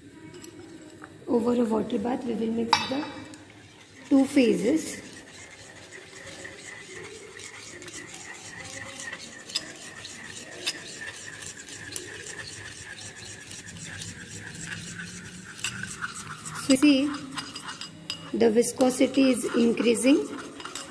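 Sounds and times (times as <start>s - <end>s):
glass rod stirring cream: 0.1s - 20.9s
rod ticking against porcelain: 4.9s - 20.9s.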